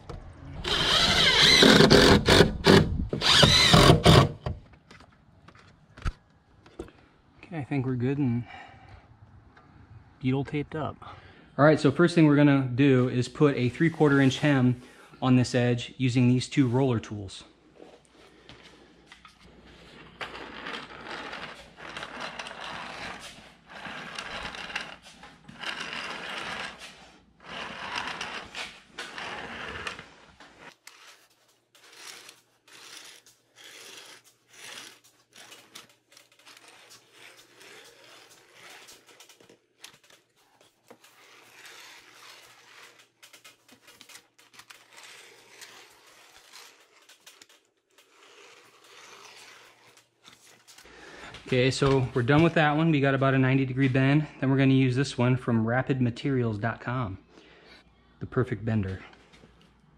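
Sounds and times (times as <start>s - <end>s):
hand roller scraping metal: 0.6s - 4.4s, 19.7s - 52.7s.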